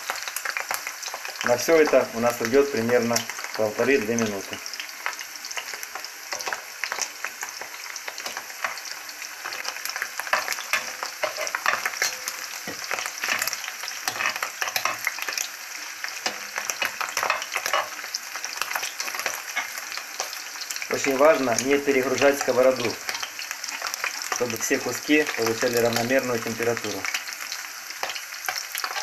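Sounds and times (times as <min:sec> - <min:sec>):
liver sizzling in hot oil: 0:00.0 - 0:29.0
metal spatula scraping a pan: 0:08.1 - 0:20.8, 0:28.0 - 0:29.0.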